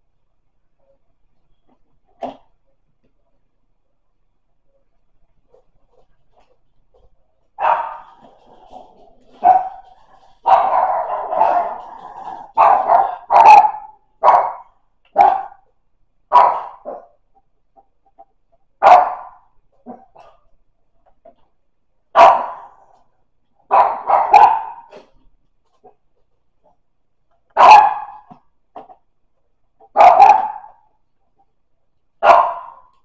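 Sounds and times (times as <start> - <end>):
dog barking: 7.6 - 8.4, 9.3 - 15.7, 16.3 - 17.2, 18.8 - 20.4, 22.1 - 22.9, 23.7 - 25.1, 27.6 - 28.4, 29.9 - 30.9, 32.2 - 32.9.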